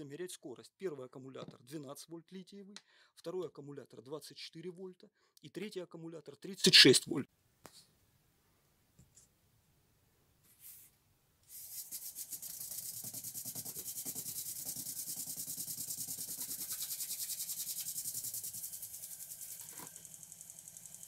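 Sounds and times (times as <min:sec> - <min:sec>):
motor spinning propeller: 0:17.6 - 0:21.0.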